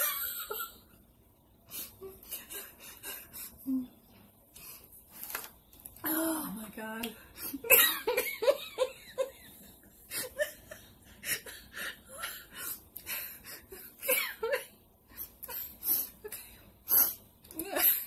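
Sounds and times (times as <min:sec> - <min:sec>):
woman laughing: 0:00.0 - 0:00.8, 0:07.4 - 0:12.6, 0:13.4 - 0:14.8.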